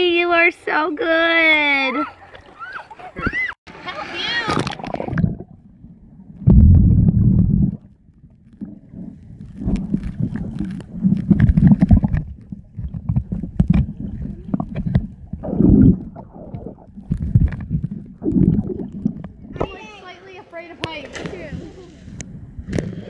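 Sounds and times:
underwater rumbling of water: 4.2 - 19.7, 21.3 - 23.0.

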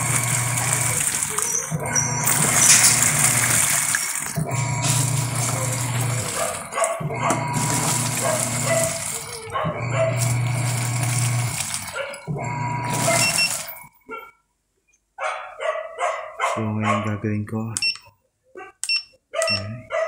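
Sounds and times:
water churning: 0.0 - 13.9
washing machine motor humming: 0.0 - 14.0.

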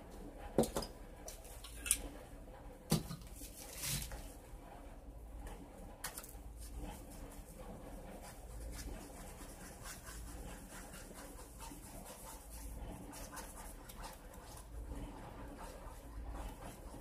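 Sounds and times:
stick scraping epoxy on paper plate: 6.7 - 17.0.

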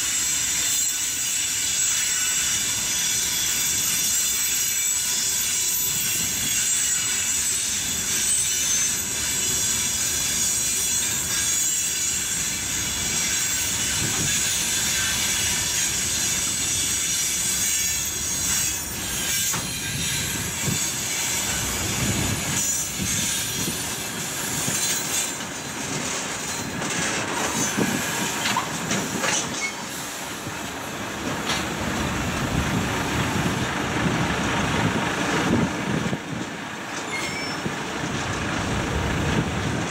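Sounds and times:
steel wheels rumbling on rail: 0.0 - 39.9
wheels clicking over rail joints: 0.0 - 39.9
high-pitched wheel squeal: 0.1 - 30.1, 37.0 - 37.8.

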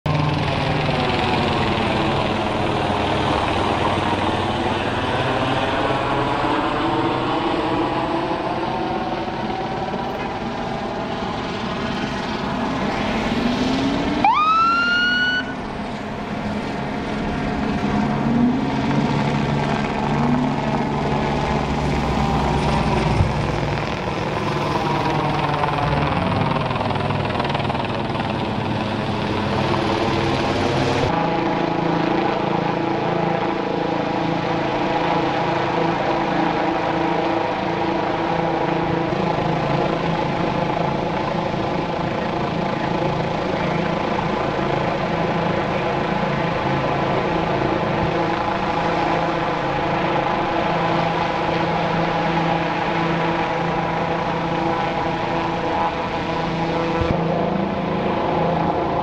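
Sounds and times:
helicopter overhead: 0.1 - 59.0
vehicle engines running: 0.1 - 59.0
police siren whoop: 5.7 - 15.7.

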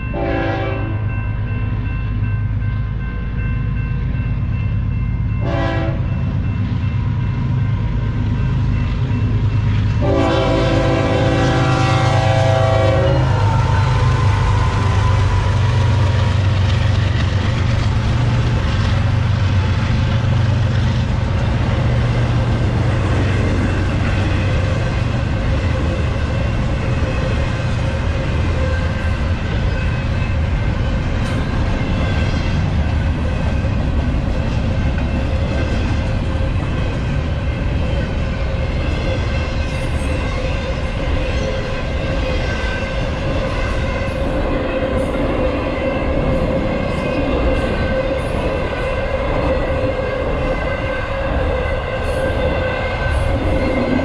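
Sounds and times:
locomotive horn blasts: 0.1 - 1.1, 5.4 - 6.1, 10.0 - 15.4.

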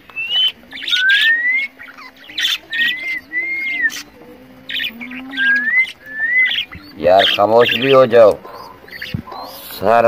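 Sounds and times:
parakeet whistled notes gliding upward: 0.2 - 4.1, 4.7 - 8.0
parakeet screeching squawks: 4.7 - 9.8.

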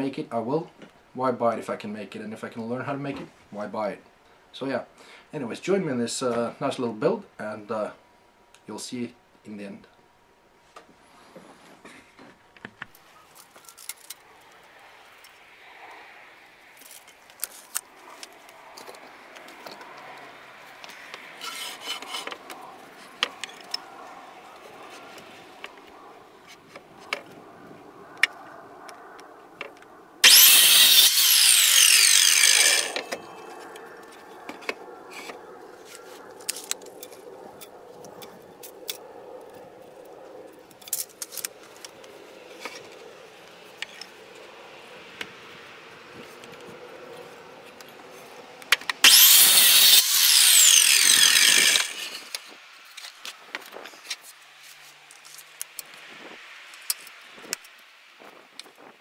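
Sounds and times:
miter saw cutting wood: 21.4 - 22.4, 30.2 - 33.4, 49.0 - 53.2.

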